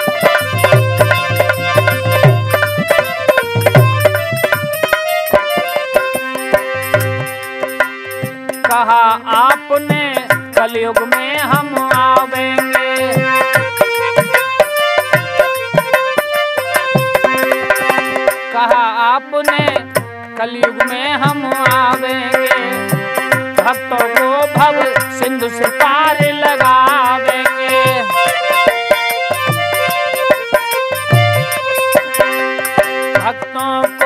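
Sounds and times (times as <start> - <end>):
hand drum beat: 0.0 - 8.8, 9.4 - 18.3, 19.5 - 20.1, 20.7 - 34.0
harmonium melody: 0.0 - 34.0.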